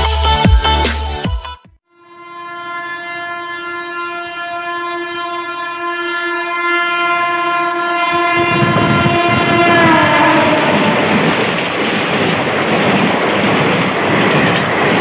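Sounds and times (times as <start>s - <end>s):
train horn blast: 1.9s - 11.6s
train rumbling and clattering: 8.1s - 15.0s.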